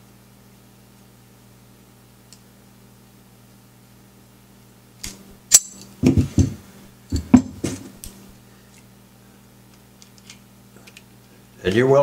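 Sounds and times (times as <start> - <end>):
metal parts clinking: 5.5 - 5.9.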